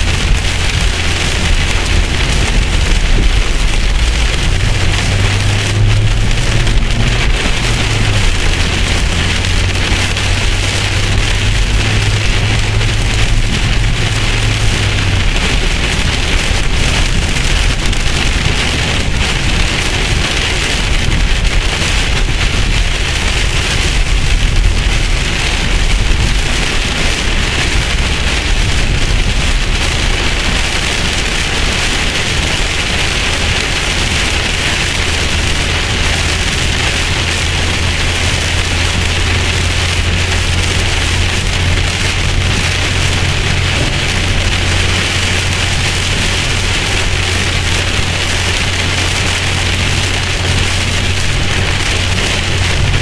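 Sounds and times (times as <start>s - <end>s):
heavy rain on car roof: 0.0s - 53.0s.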